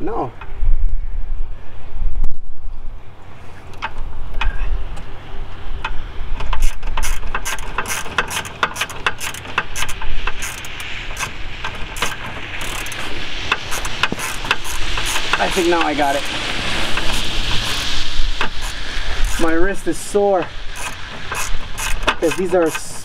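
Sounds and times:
hand ratchet clicking: 5.8 - 19.4, 20.4 - 23.0.

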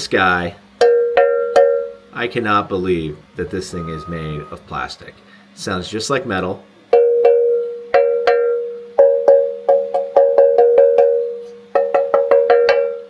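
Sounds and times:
cowbell hits: 0.8 - 2.0, 6.9 - 13.0.

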